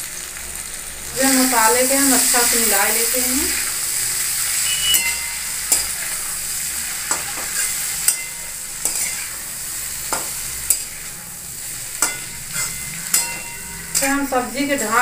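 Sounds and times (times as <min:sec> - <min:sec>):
vegetables sizzling in a pan: 0:00.0 - 0:15.0
metal spatula scraping a pan: 0:04.3 - 0:15.0.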